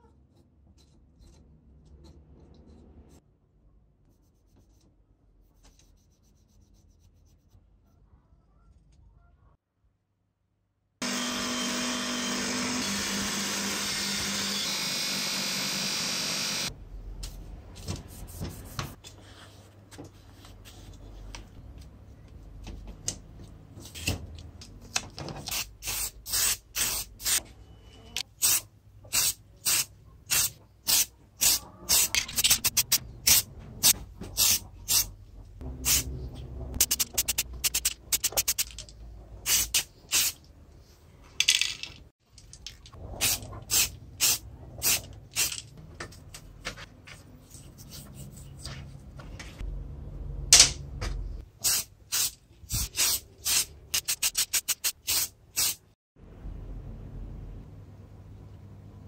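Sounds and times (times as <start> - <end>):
spray can hissing bursts: 51.6 - 55.8.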